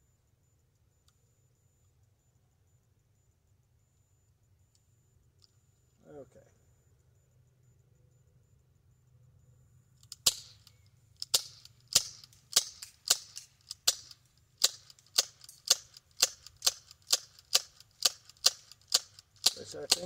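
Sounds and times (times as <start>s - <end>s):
bb pistol firing sharp pops: 10.0s - 20.0s.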